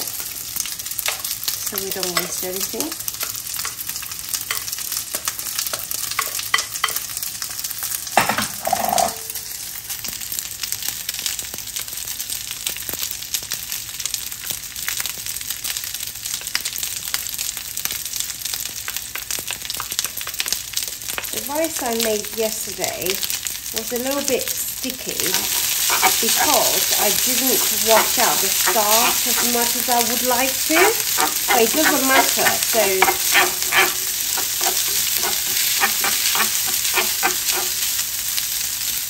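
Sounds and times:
rice sizzling in frying pan: 0:00.0 - 0:39.0.

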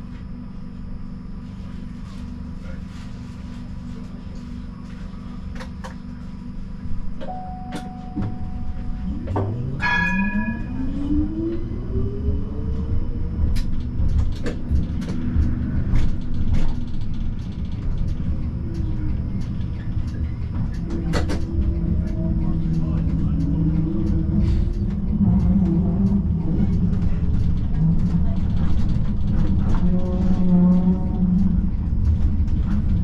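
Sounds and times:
tram traction drive whine: 0:03.5 - 0:33.0
low rumble: 0:06.8 - 0:33.0
brief ringing signal: 0:07.3 - 0:09.1.

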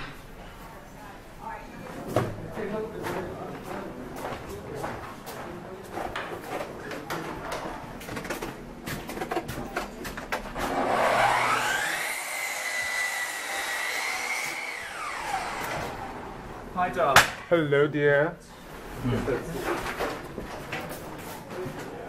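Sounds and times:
power tool motor whining: 0:10.6 - 0:16.2.

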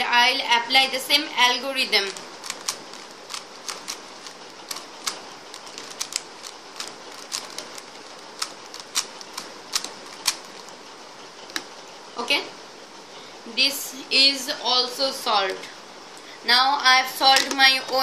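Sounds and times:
puzzle cube clicking: 0:02.1 - 0:10.7, 0:11.5 - 0:11.7.

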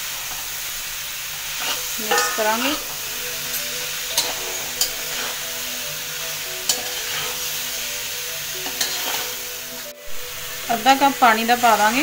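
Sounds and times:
frying hiss: 0:00.0 - 0:12.0
metal spatula clinking on pan: 0:01.6 - 0:05.4, 0:06.6 - 0:07.4, 0:08.6 - 0:09.3.

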